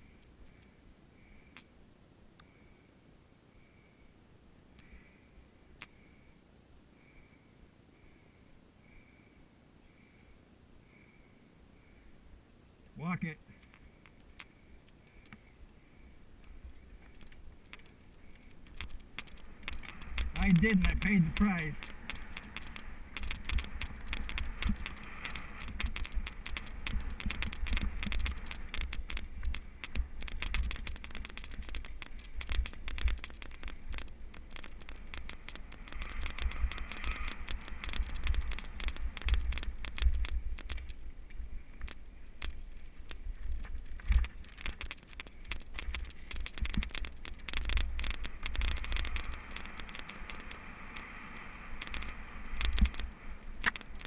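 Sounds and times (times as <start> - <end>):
constant low rumble: 0.0 - 54.0
bike tyres crunching on dirt: 16.5 - 54.0
bike frame rattling: 16.6 - 41.1, 41.7 - 54.0.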